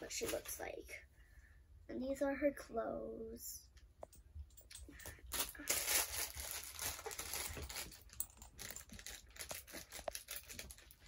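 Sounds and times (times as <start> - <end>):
plastic wrapper crackling and tearing: 5.3 - 11.0.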